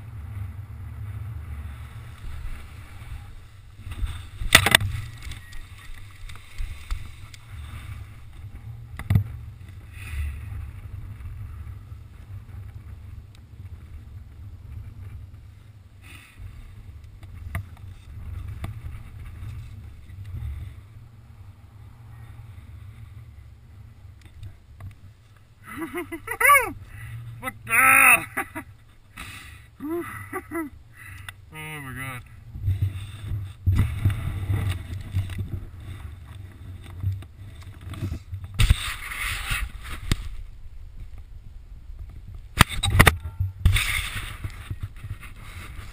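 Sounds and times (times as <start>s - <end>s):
wind buffeting microphone: 32.3s - 45.9s.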